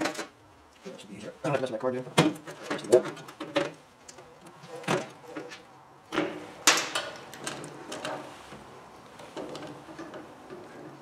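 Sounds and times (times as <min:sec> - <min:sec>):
clicks and knocks on sheet metal: 0:04.8 - 0:08.3.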